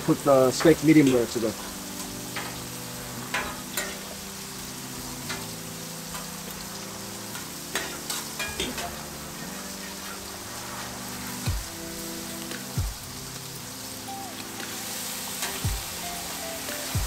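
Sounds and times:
food sizzling on a griddle: 0.0 - 17.0
metal spatula scraping griddle: 1.0 - 4.2, 5.2 - 11.5.

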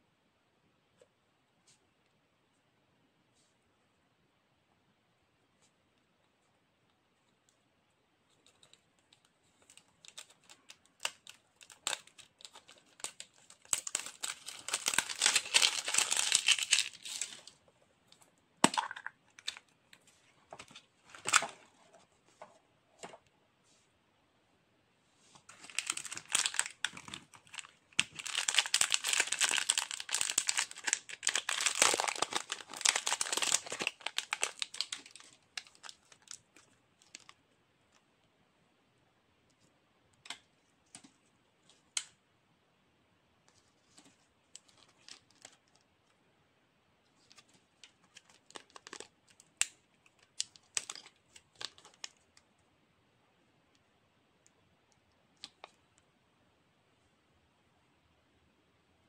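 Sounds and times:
sticker sheets crinkling: 8.3 - 17.5, 25.4 - 37.4, 47.2 - 52.2.

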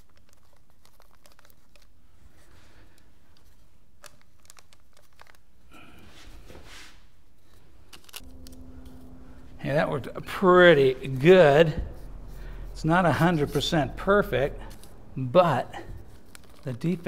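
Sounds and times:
paper and cardboard rustling: 0.0 - 5.4, 11.1 - 17.0.

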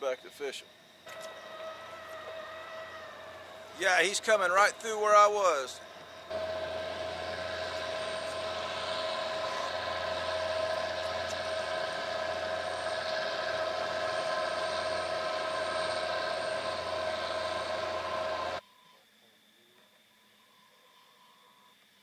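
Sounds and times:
boat diesel engines droning: 1.1 - 18.6.

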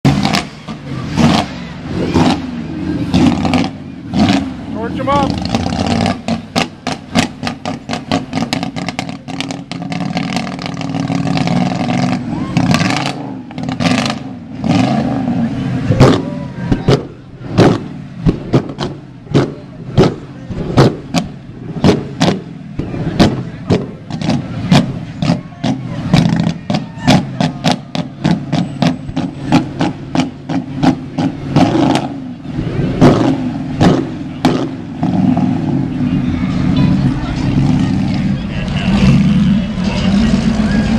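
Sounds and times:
car engine revving: 0.0 - 40.9
exhaust pops and bangs: 5.3 - 15.0, 15.9 - 32.2, 33.0 - 35.7.

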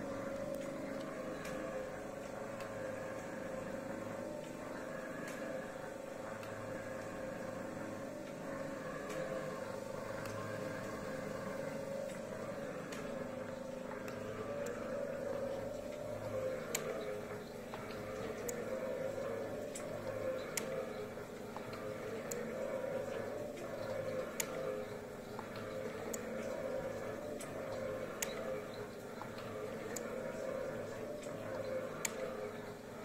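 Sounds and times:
mechanical shaper running: 0.0 - 33.0
sharp ticks: 12.0 - 33.0.

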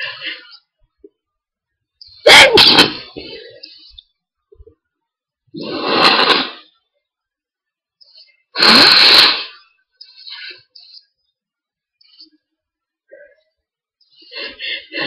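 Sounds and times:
person sneezing: 2.3 - 3.3.

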